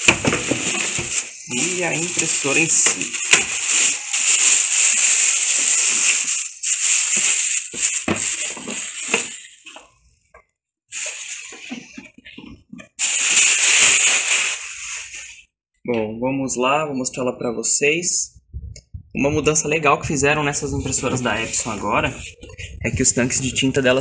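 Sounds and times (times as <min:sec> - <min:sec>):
plastic bag crinkling: 0:00.0 - 0:10.0, 0:10.9 - 0:12.1, 0:12.9 - 0:15.4.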